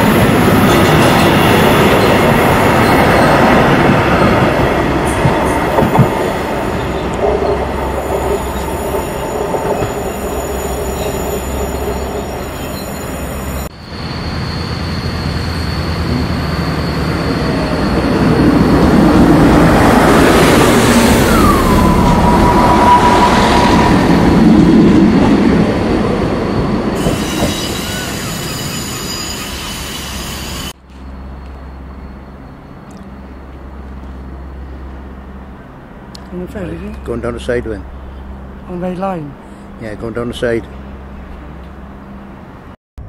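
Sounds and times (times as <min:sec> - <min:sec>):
diesel train passing: 0:00.0 - 0:42.8
distant rail noise: 0:00.0 - 0:42.8
squeal sliding down in pitch: 0:08.2 - 0:18.1, 0:26.4 - 0:30.7.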